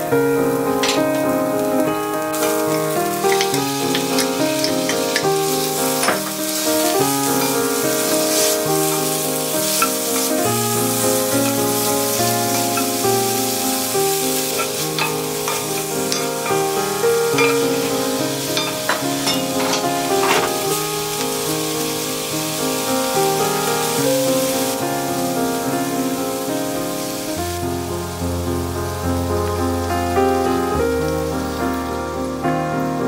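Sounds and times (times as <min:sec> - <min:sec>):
vegetables sizzling in oil: 0:00.0 - 0:32.9
instrumental background music: 0:00.0 - 0:33.0
spatula scraping and tapping pan: 0:14.6 - 0:16.7.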